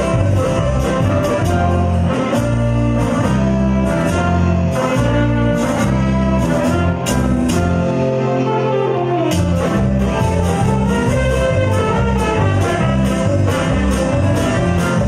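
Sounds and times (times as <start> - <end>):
bass line: 0.0 - 15.0
saxophones: 0.0 - 15.0.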